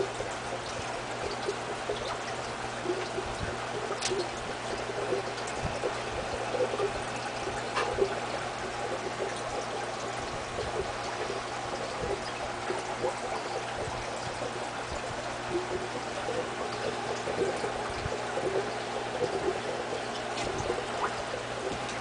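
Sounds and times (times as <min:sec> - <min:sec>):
low steady hum: 0:00.0 - 0:22.0
small water splashes: 0:00.0 - 0:22.0
water trickling: 0:00.0 - 0:22.0.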